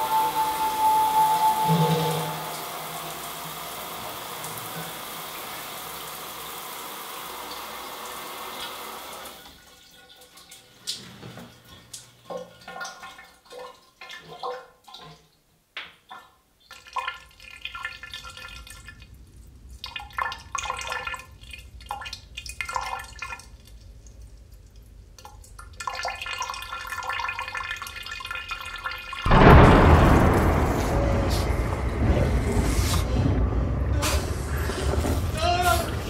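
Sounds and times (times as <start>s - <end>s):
low hum: 0.0s - 4.3s, 29.3s - 35.4s
water dripping and splashing: 0.0s - 30.7s.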